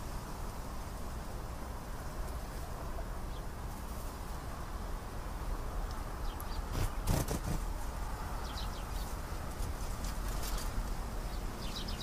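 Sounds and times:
steady background hiss: 0:00.0 - 0:12.0
brief rustle: 0:09.0 - 0:11.0
canary chirps: 0:11.3 - 0:12.0.

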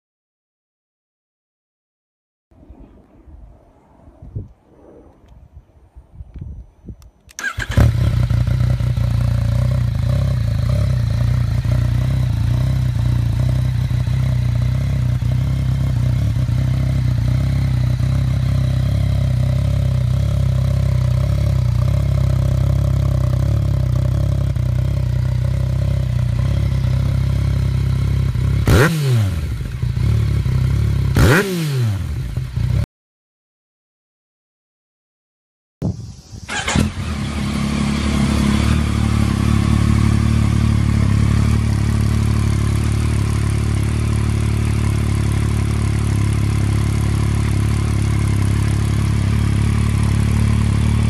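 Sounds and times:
motorcycle engine idling: 0:07.4 - 0:28.8, 0:36.6 - 0:51.0.

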